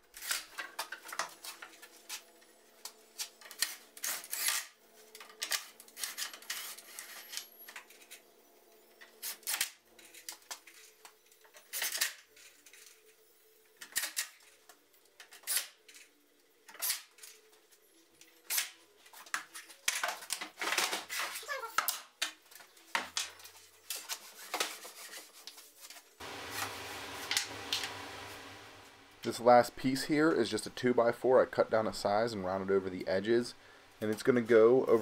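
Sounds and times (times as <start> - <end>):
faint steady hum: 26.2 - 35.0.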